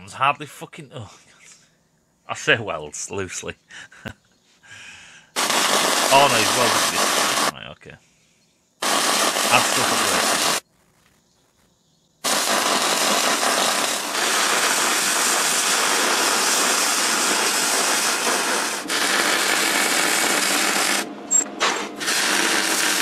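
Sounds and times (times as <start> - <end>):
welder arc crackling and sizzling: 5.4 - 7.6, 8.8 - 23.0.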